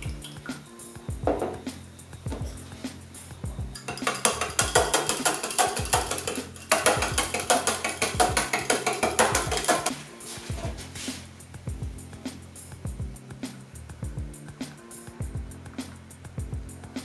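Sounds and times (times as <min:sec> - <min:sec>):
background music: 0:00.0 - 0:17.0
ice cubes clinking against glass: 0:03.8 - 0:09.9.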